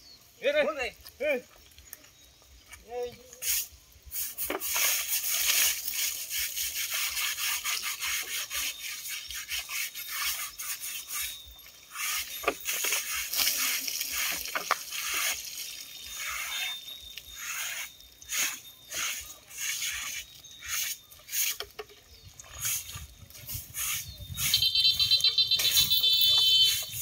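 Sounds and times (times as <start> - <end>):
hands scrubbing wet hide: 3.4 - 21.8, 22.4 - 24.5.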